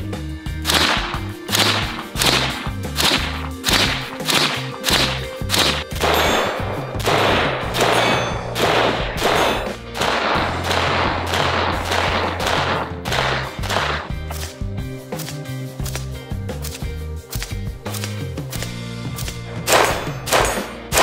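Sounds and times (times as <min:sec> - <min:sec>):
background music with a beat: 0:00.0 - 0:21.0
rapid rifle gunfire: 0:00.6 - 0:14.5, 0:19.6 - 0:21.0.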